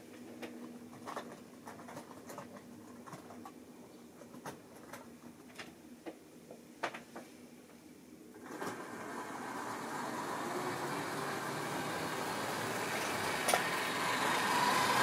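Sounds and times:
model train motor hum: 8.4 - 15.0
wheels clicking on track: 8.4 - 15.0.

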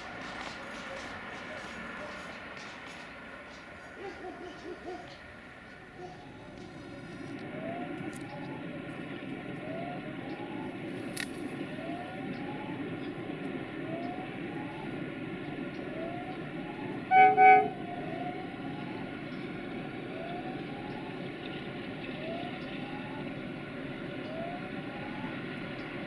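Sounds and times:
freight train rumble: 0.0 - 26.0
locomotive horn blasts: 17.0 - 18.0.

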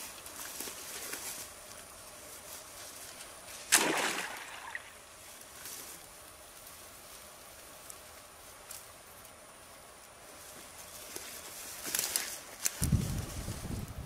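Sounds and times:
trap splashing into water: 3.7 - 5.0.

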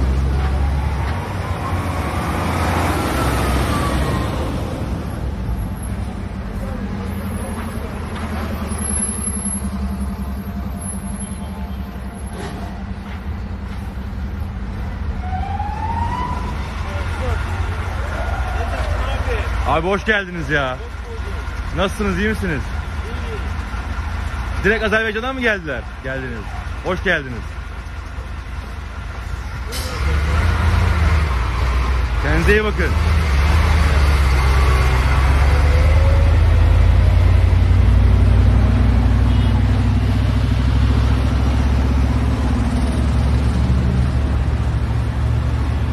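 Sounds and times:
diesel trucks rumbling: 0.0 - 45.9
siren rising in pitch: 15.2 - 16.9.

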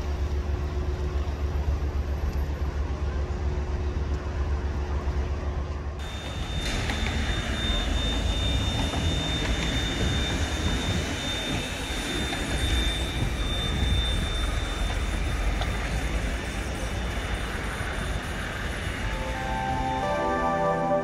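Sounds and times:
tram rumbling: 0.0 - 21.0
thin high whine: 6.0 - 21.0.

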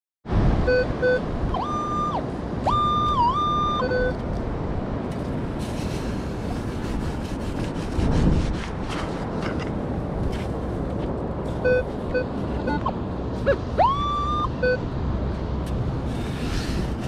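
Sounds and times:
metal detector beeps and tones: 0.7 - 4.2, 11.6 - 14.8.

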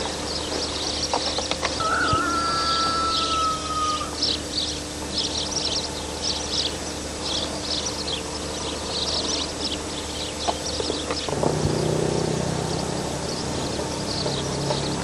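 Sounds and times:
faint steady hum: 0.0 - 11.5
thin high tone: 1.8 - 4.4.

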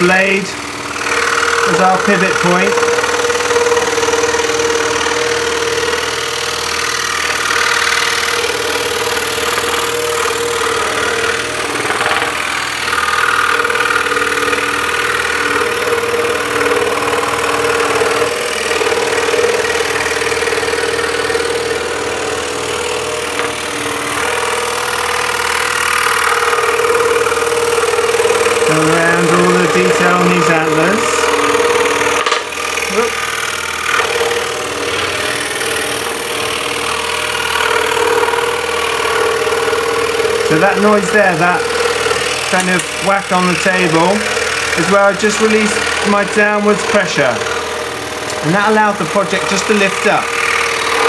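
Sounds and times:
scroll saw cutting wood: 0.0 - 51.0.

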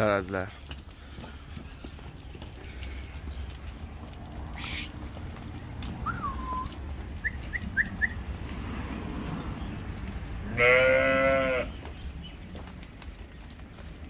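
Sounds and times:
sheep bleating: 10.4 - 11.8.

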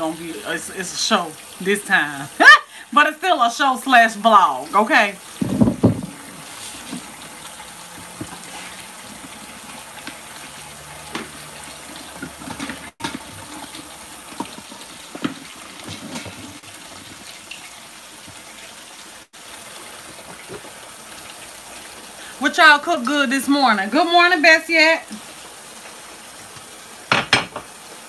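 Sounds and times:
water running from kitchen tap: 0.0 - 28.0
kitchenware clicking and knocking: 27.1 - 27.7.

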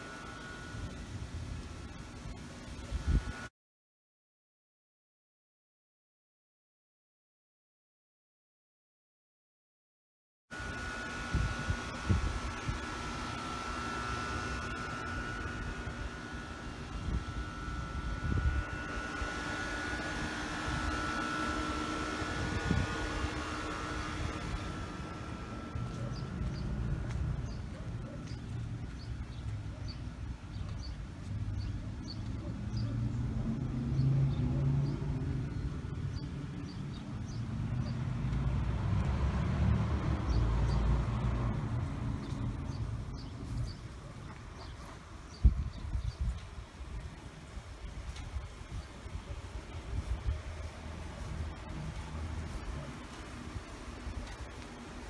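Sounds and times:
two-tone mechanical hum: 0.0 - 3.5, 10.5 - 55.0
road vehicle passing: 31.2 - 45.1, 50.0 - 54.6.

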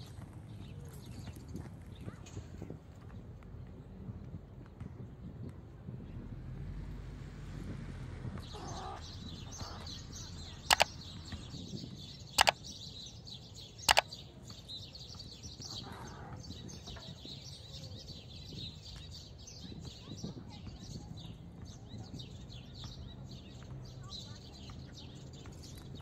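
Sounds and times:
birds chirping: 8.2 - 26.0
mouse click sound effects: 10.7 - 10.9, 13.9 - 14.1.

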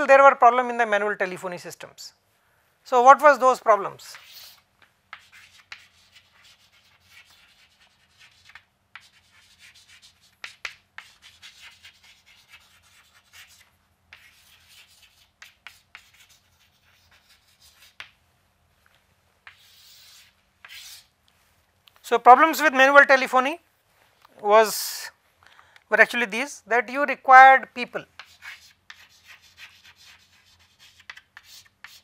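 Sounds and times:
chalk scratching on blackboard: 4.0 - 18.2, 19.4 - 21.2, 28.2 - 32.0.

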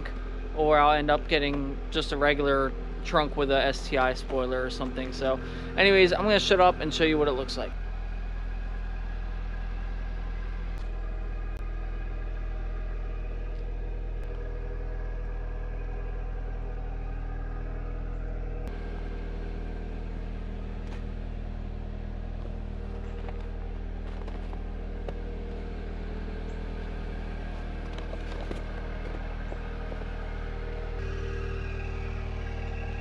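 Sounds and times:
car engine idling: 0.0 - 33.0.

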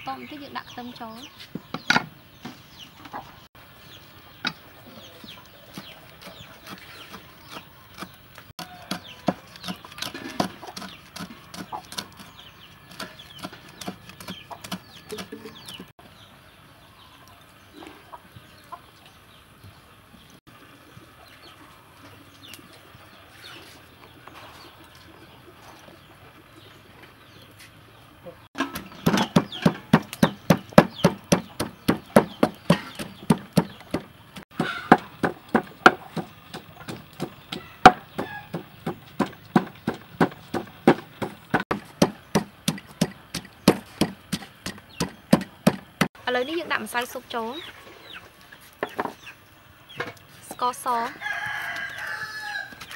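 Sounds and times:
pestle pounding in wooden mortar: 5.7 - 12.3, 12.9 - 15.9, 28.6 - 46.1.

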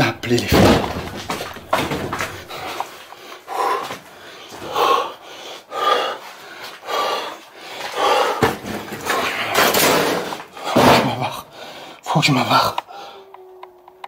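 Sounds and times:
man breathing hard: 2.0 - 12.0, 12.8 - 13.4.

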